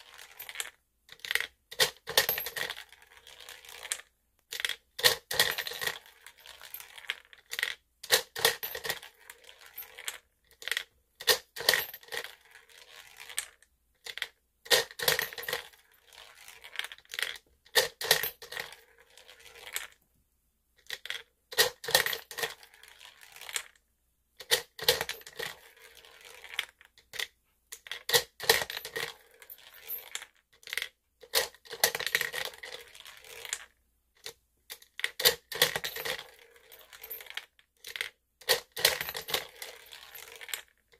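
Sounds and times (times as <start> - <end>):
coins dropping in: 14.1 - 15.8, 35.2 - 40.7.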